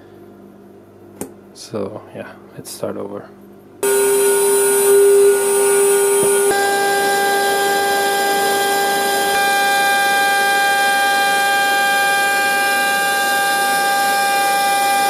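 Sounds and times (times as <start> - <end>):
router spindle whining: 3.8 - 15.0.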